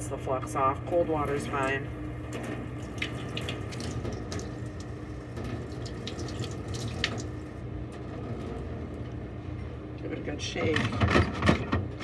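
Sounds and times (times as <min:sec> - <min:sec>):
tap water splashing into sink: 0:02.4 - 0:07.4.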